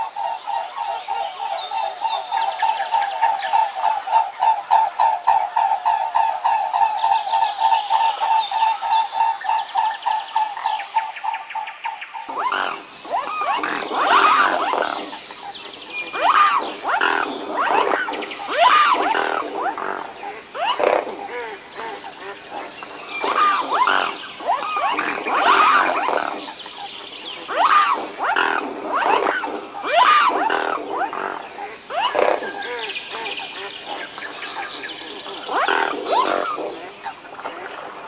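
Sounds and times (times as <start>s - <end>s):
swans honking: 12.3s - 15.2s, 16.1s - 26.6s, 27.4s - 32.5s.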